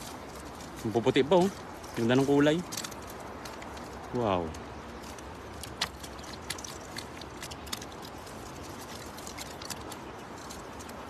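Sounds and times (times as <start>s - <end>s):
net clicking on stones: 0.0s - 11.0s
steady background hiss: 0.0s - 11.0s.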